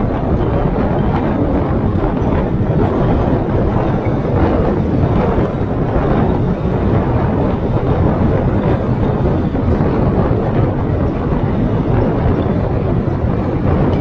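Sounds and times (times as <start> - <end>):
car road noise: 0.0 - 14.0
wind buffeting microphone: 0.0 - 14.0.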